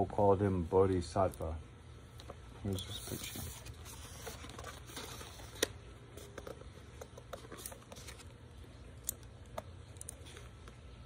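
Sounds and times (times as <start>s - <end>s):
book pages turning: 2.2s - 8.8s, 9.5s - 10.9s.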